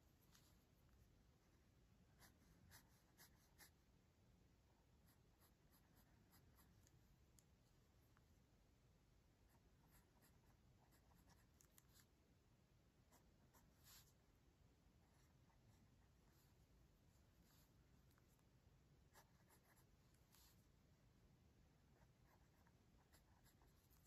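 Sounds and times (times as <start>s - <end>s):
pencil scratching on paper: 2.2s - 3.8s, 5.0s - 6.9s, 9.5s - 12.1s, 19.1s - 20.6s, 22.0s - 24.0s.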